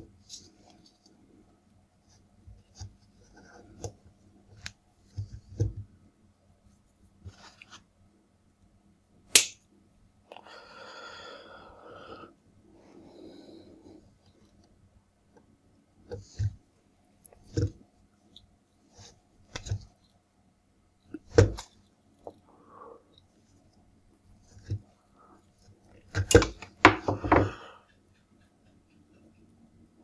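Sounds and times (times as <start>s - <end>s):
sharp click: 9.3s - 9.6s.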